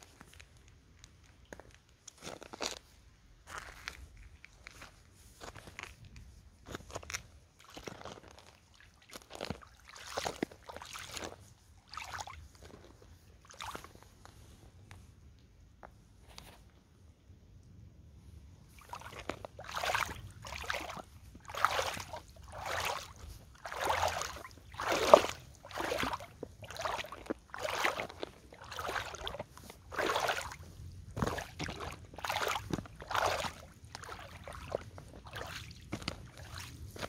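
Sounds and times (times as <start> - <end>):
boots splashing through puddle: 6.8 - 14.0, 18.7 - 37.0.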